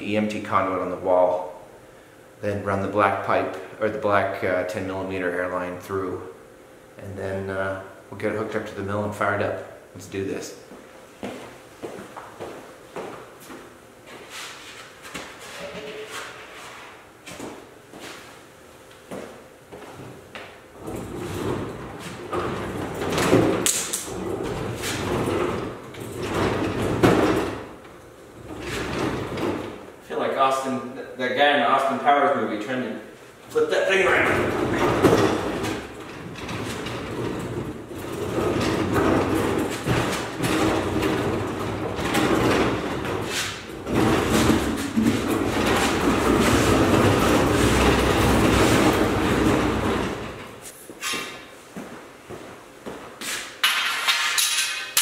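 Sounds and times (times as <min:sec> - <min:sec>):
tool cabinet rolling with clatter: 0:20.0 - 0:29.9, 0:33.6 - 0:50.7
metal drawers sliding on runners: 0:34.1 - 0:50.7.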